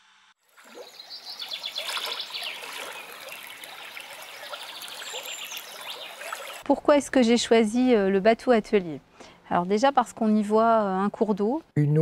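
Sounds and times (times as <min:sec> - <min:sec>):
water trickling and flowing: 0:00.4 - 0:06.7.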